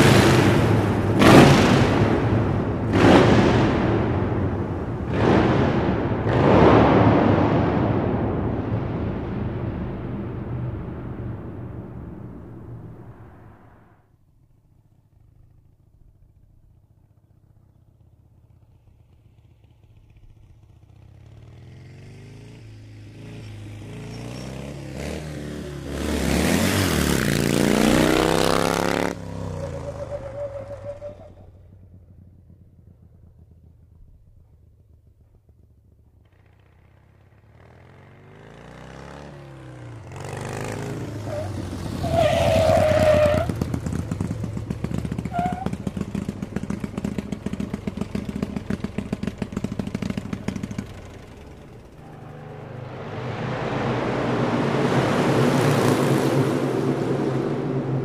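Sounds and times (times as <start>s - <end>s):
rushing air: 0.0s - 14.0s, 51.8s - 58.0s
motorcycle engine: 0.0s - 58.0s.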